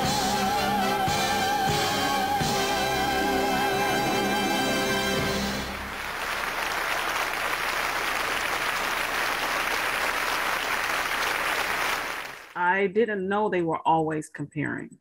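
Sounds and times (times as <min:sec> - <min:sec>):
audience applauding: 0:04.3 - 0:12.6.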